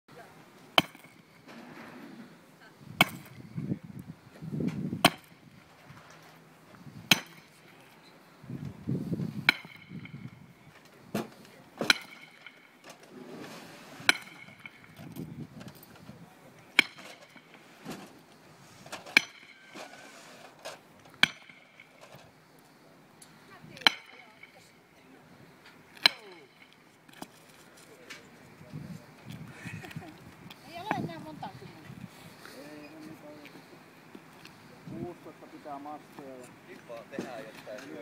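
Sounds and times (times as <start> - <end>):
hammer striking steel stake: 0.8 - 1.2, 3.0 - 3.4, 5.0 - 5.4, 7.1 - 7.7, 9.4 - 10.4, 11.2 - 12.8, 14.0 - 15.2, 16.7 - 17.6, 19.1 - 19.9, 21.1 - 22.0, 23.8 - 24.6, 26.0 - 26.8.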